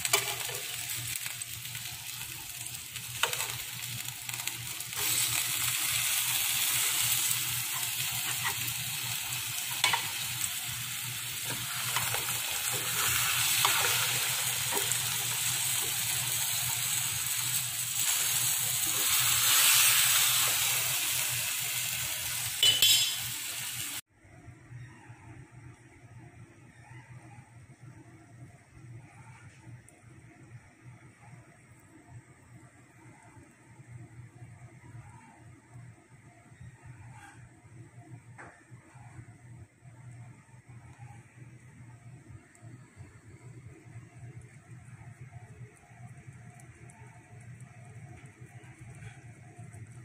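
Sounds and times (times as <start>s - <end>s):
fish sizzling in a pan: 0.0s - 24.0s.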